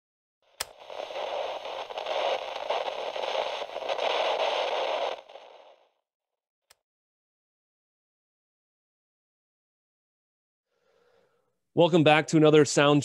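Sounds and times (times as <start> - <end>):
radio static hiss and crackle: 0.6 - 5.9.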